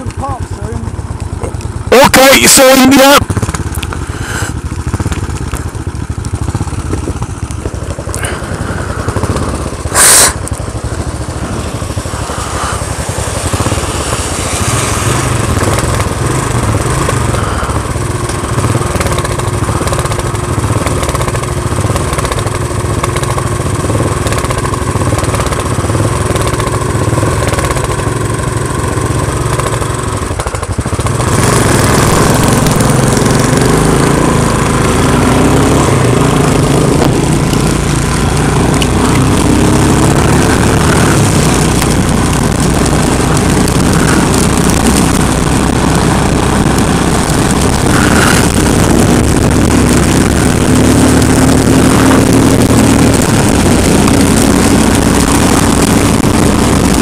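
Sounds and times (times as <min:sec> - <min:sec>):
motorcycle engines idling: 0:00.0 - 0:57.0
loud burst of noise: 0:08.2 - 0:18.0, 0:39.8 - 0:57.0
heavy rain: 0:31.2 - 0:57.0.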